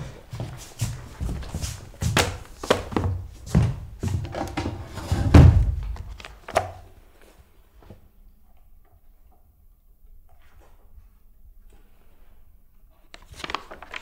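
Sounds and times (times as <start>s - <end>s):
paper rustling: 13.1s - 14.0s.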